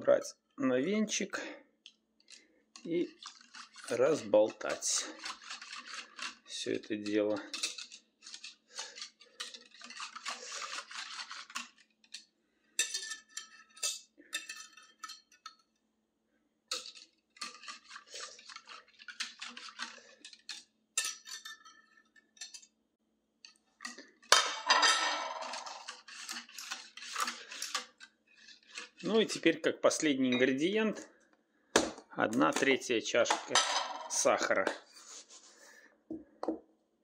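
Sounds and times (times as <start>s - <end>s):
whisk clattering: 2.8s - 15.6s, 16.7s - 22.6s, 24.3s - 30.1s
whisk clinking in a cup: 2.8s - 15.6s, 16.7s - 22.7s, 24.8s - 29.5s.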